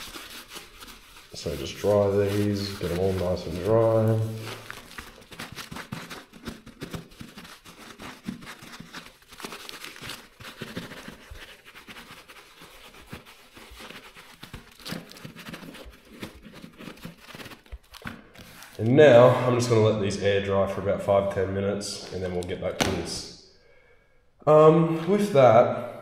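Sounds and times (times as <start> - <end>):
paper towel rustling on gloves: 0.0 - 19.9.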